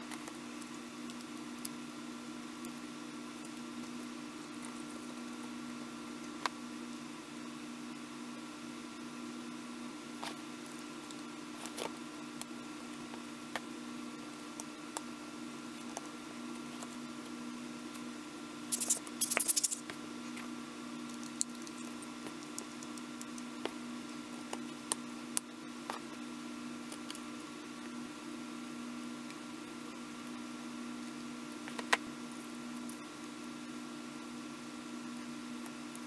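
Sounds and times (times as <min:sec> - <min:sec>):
steady low hum: 0:00.0 - 0:36.0
small parts clicking and scratching: 0:18.7 - 0:19.9, 0:21.0 - 0:26.1.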